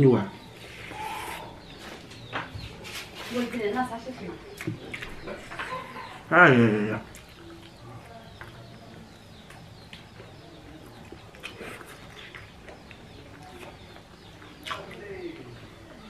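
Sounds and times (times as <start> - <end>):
faint bird calls: 0.3 - 3.0
person chewing: 11.0 - 13.7, 14.6 - 15.0.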